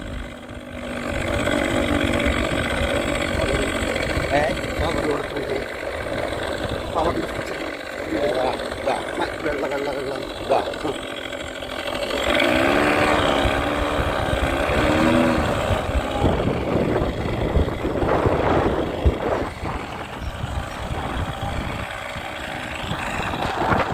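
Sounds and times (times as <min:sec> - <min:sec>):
road noise: 0:00.0 - 0:23.9
wind rumbling over microphone: 0:13.4 - 0:23.9.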